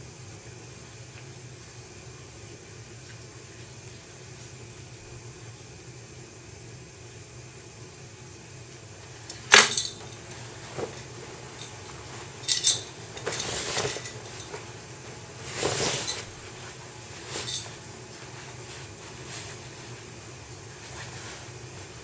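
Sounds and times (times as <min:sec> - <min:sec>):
brushing rustles: 0:09.4 - 0:22.0.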